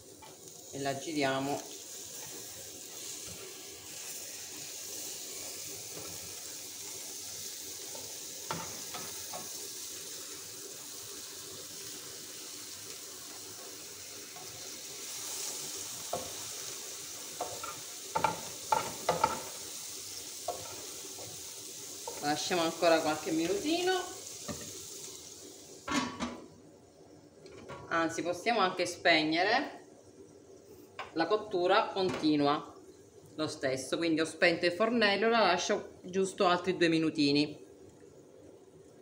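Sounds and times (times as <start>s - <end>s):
omelette sizzling in a frying pan: 0.0s - 39.0s
spatulas knocking and scraping pan: 17.4s - 19.5s.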